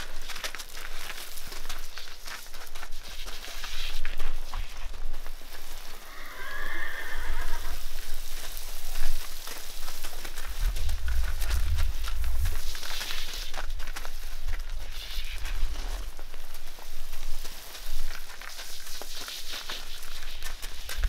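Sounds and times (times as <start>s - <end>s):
garden hose spraying water: 0.0s - 10.7s, 12.2s - 20.9s
hooves on gravel: 0.0s - 21.0s
horse whinnying: 6.0s - 7.9s.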